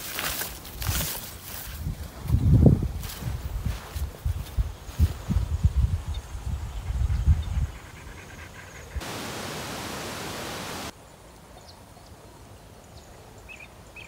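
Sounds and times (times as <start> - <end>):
faint outdoor ambience: 0.0 - 14.0
wind rumble on microphone: 0.8 - 8.4
steady hiss: 9.0 - 11.5.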